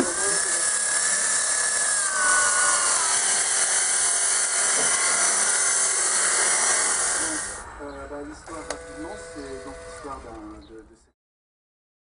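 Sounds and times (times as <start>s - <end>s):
electric drill boring into concrete: 0.0s - 7.7s, 8.4s - 10.5s.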